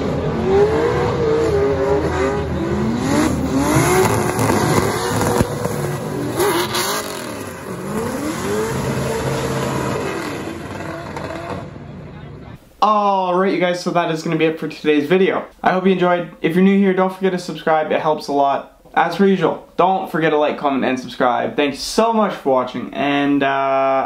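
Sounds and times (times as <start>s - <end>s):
car engines revving hard: 0.0s - 12.5s
sharp crack: 3.8s - 7.5s.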